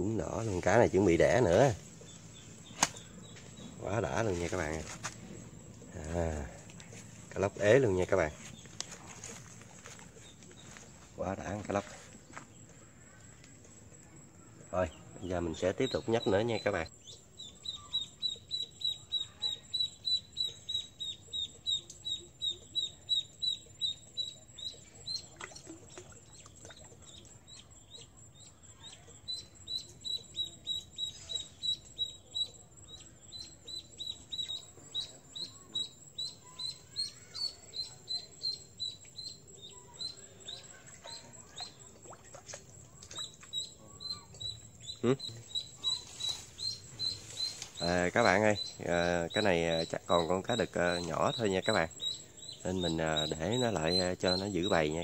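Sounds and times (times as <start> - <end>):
duckling peeping: 15.6 - 41.8, 43.1 - 55.0.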